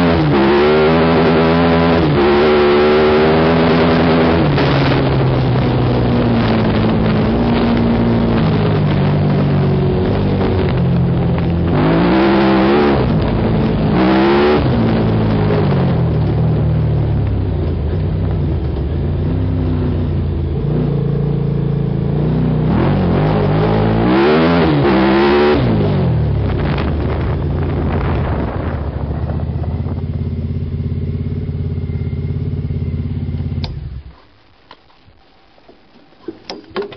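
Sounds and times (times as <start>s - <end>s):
small engine revving: 0.0s - 16.0s.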